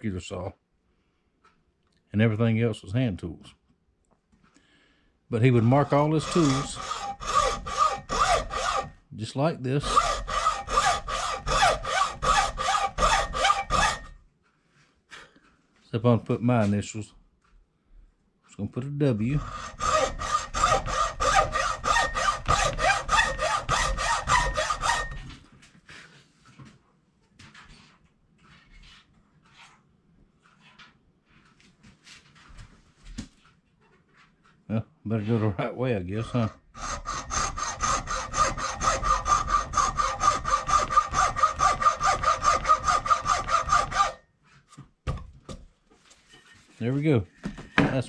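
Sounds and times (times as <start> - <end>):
hacksaw cutting wood: 5.4 - 9.0, 9.8 - 14.2, 19.1 - 25.4, 36.2 - 44.2.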